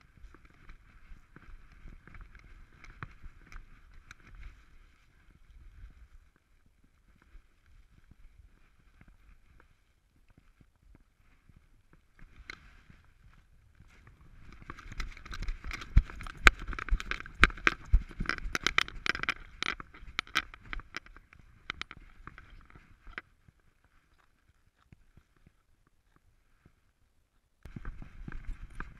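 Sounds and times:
faint steady noise: 0.0 - 28.9
camera handling clicks and scrapes: 14.5 - 23.2.

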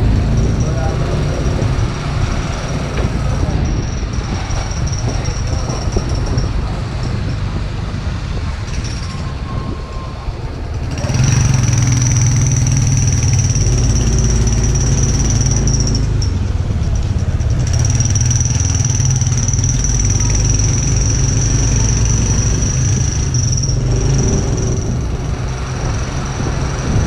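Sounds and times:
road and wind noise: 0.0 - 27.0
motorcycle engine running: 10.5 - 27.0.

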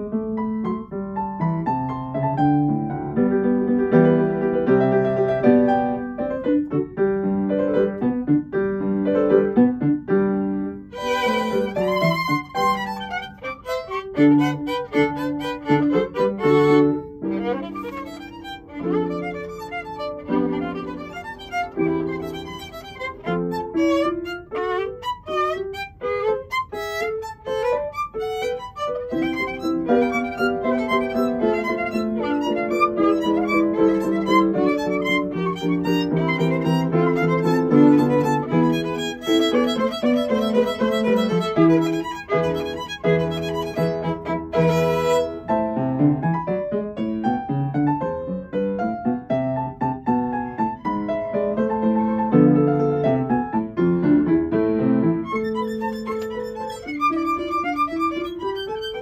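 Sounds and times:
piano accompaniment: 0.0 - 59.0
violin playing classical piece: 10.7 - 46.3, 50.0 - 53.6, 54.8 - 59.0.

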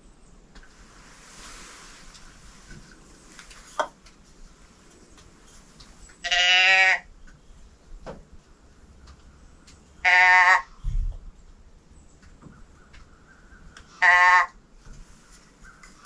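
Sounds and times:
deer call bleats: 6.2 - 7.1, 10.0 - 10.8, 13.9 - 14.6.

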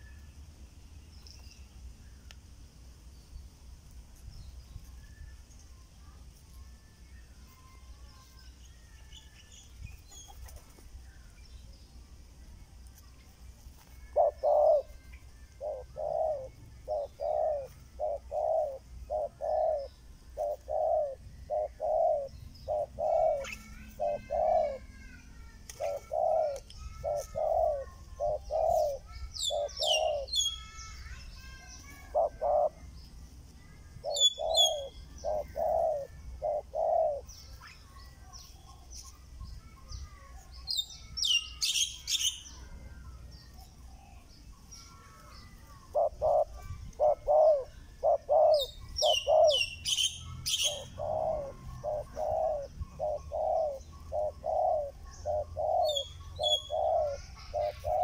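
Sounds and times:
birds chirping: 0.0 - 58.0
doves cooing: 13.9 - 24.9, 25.7 - 30.5, 32.0 - 32.9, 34.0 - 37.3, 45.7 - 58.0.

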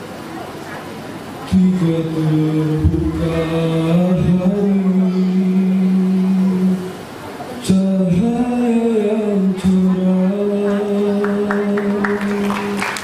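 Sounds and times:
male a cappella group singing: 1.5 - 7.0, 7.6 - 13.0
hand-clapping: 10.7 - 13.0.

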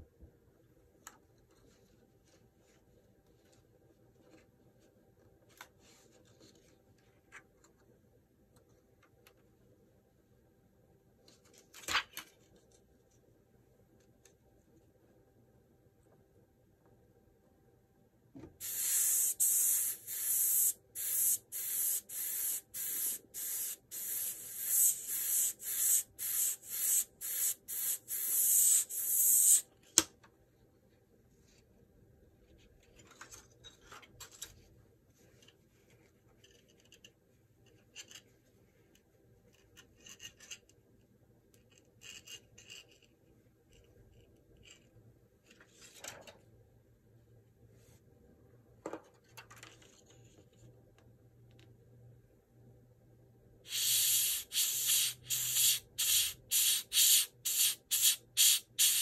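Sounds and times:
airbrush spraying hiss: 18.6 - 29.7, 53.7 - 59.0.

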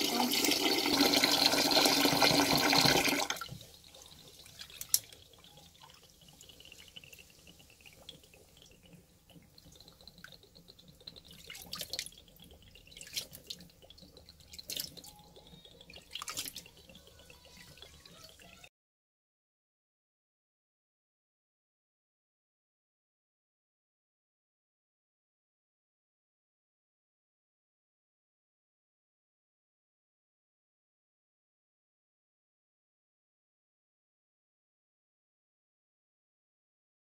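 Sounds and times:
water sloshing as rice stirred: 2.1 - 18.6
clicks and splashes: 3.4 - 18.6.

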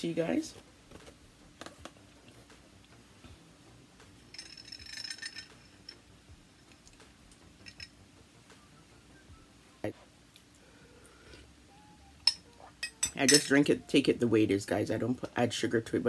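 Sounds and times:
metal spoon clinking ceramic mug: 12.3 - 13.6.

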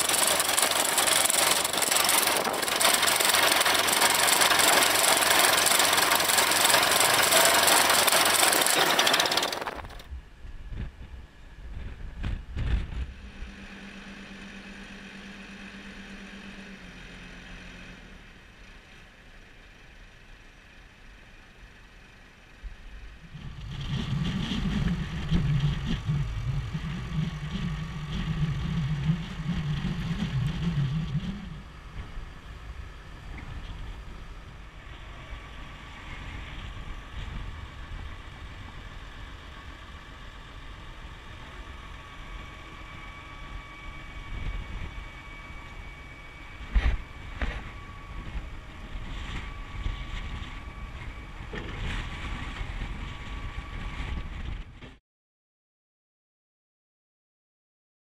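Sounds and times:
tractor engine running: 0.0 - 10.1.

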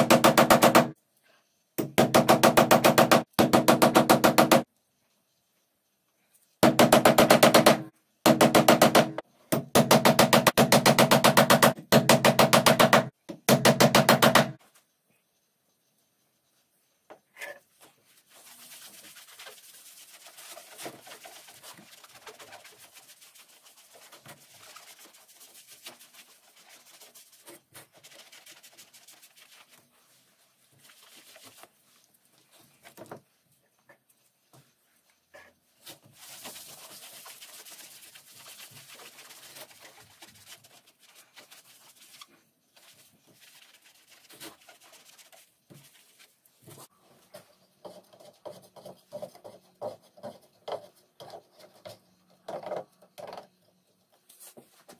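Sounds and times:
sponge scrubbing leather: 18.2 - 32.0, 36.1 - 46.2.

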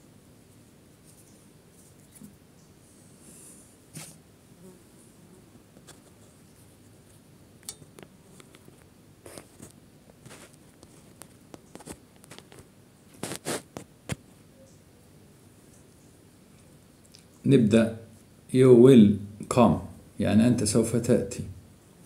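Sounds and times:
paper rustling: 8.5 - 13.8.

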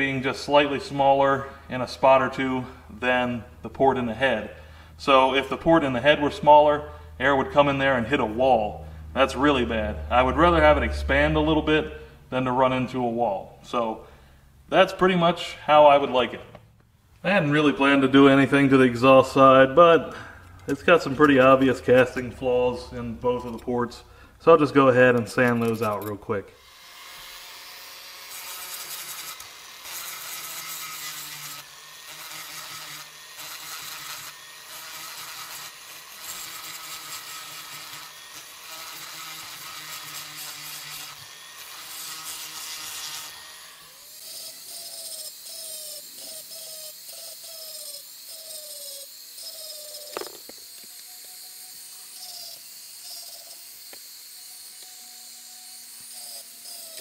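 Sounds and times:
rotary tool grinding metal: 20.4 - 57.0.

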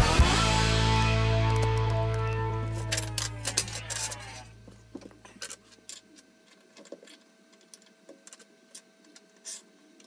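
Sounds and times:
metal bars clicking: 1.5 - 4.4.

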